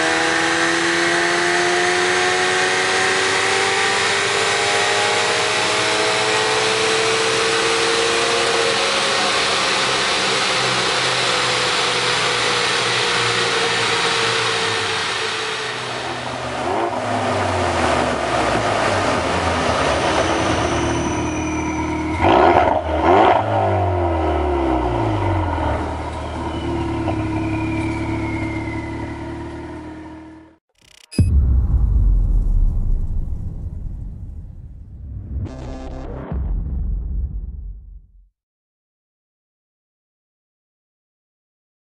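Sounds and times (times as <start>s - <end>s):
car engine revving on a dyno: 0.0s - 21.2s, 21.8s - 26.0s.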